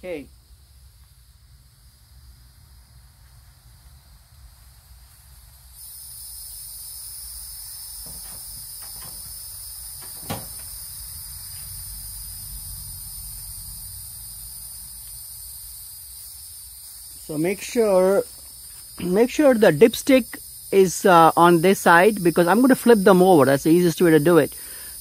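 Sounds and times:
high-pitched insect chorus: 0.0 - 25.0
knocks from handling mower: 10.0 - 10.7.

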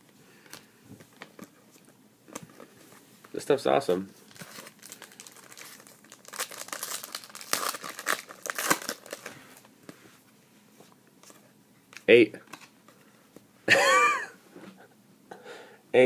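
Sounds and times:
wrapper tearing and crinkling: 4.3 - 9.3.

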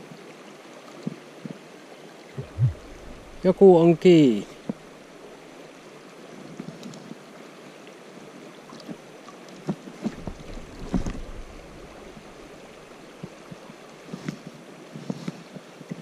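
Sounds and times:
river water running: 0.0 - 16.0
wind buffeting microphone: 2.4 - 5.1
knocks and splashes: 9.6 - 13.4.

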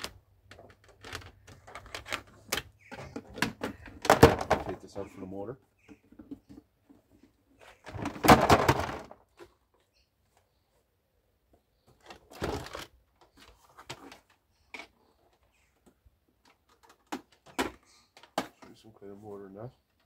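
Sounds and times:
plastic appliance crashing onto scrap: 3.3 - 4.8, 7.9 - 9.2.

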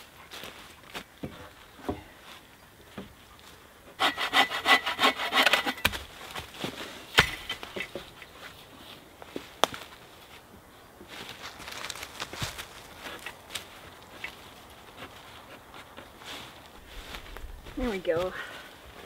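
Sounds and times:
hand saw cutting wood: 4.0 - 6.0
wood cracking: 5.0 - 8.2.

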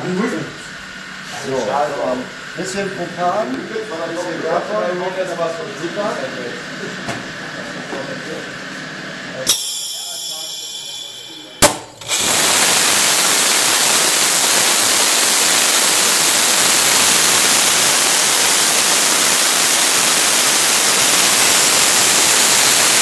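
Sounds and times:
rocket motor hissing: 9.4 - 23.0.

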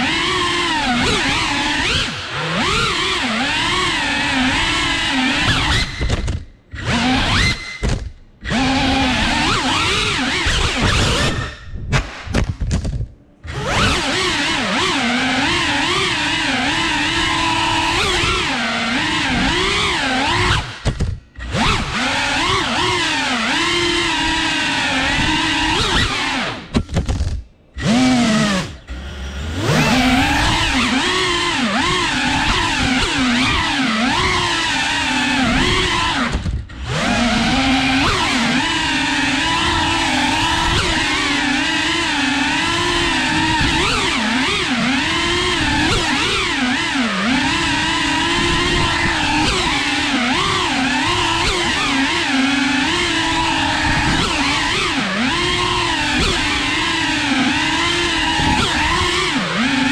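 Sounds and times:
drone propellers whining: 0.0 - 11.7, 13.4 - 59.9.

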